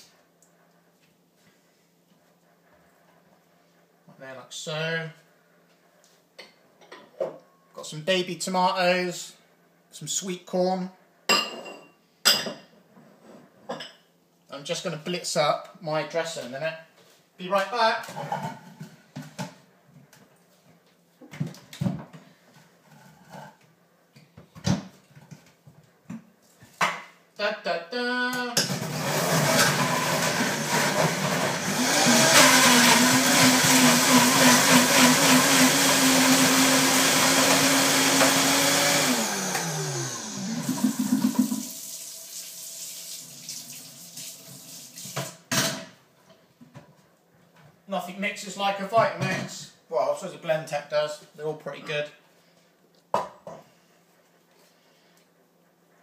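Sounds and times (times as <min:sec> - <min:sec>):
blender motor running: 0:28.7 - 0:42.2.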